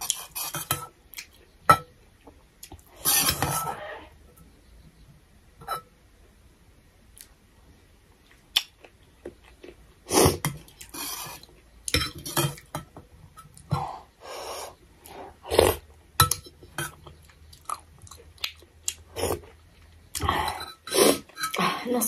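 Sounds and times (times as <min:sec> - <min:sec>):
chewing: 0:16.8 - 0:21.6
slurping: 0:18.5 - 0:21.6.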